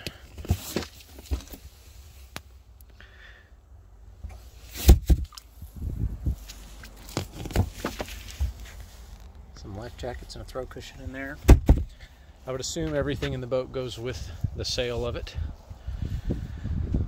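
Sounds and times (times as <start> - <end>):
loud thump: 11.4 - 12.0
knocks and rubbing of cushions: 11.5 - 11.9.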